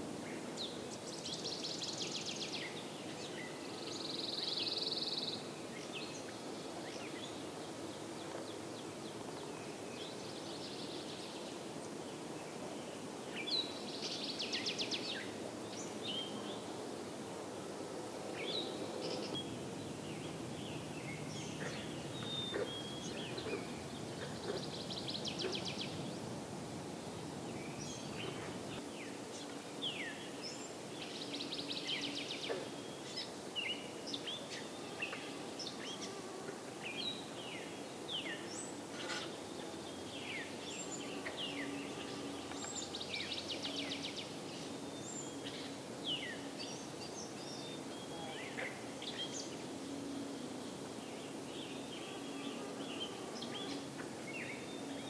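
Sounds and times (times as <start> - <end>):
low background noise: 0.0 - 55.0
birds chirping and singing: 18.4 - 26.2, 36.8 - 55.0.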